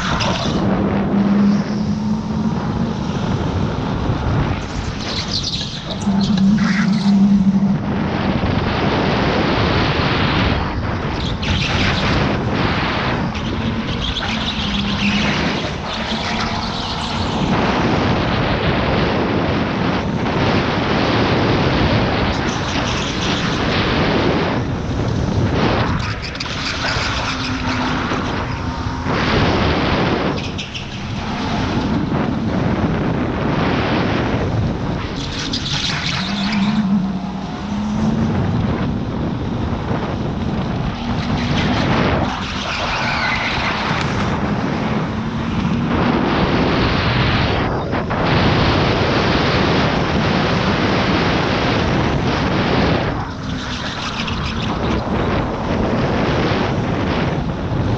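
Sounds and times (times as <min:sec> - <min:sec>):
tyre noise: 0:00.0 - 0:48.1
wind rush on microphone: 0:00.0 - 0:57.9.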